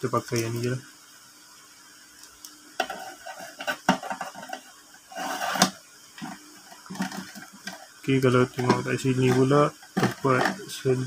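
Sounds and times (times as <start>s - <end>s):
plastic parts clicking and knocking: 2.8s - 4.6s, 5.6s - 7.8s, 8.6s - 10.6s
plastic parts rattling: 5.2s - 7.8s, 8.6s - 10.7s.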